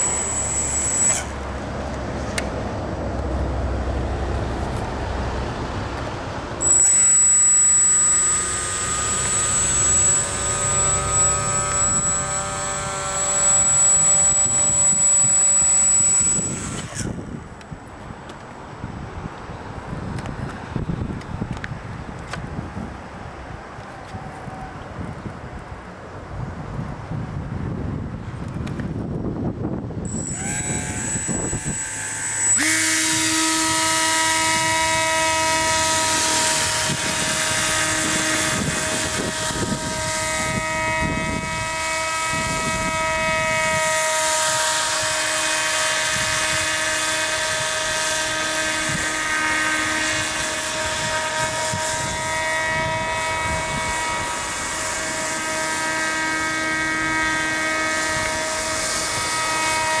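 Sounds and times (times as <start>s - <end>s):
model airboat motor buzzing: 0.0s - 2.2s, 6.6s - 17.2s, 30.1s - 60.0s.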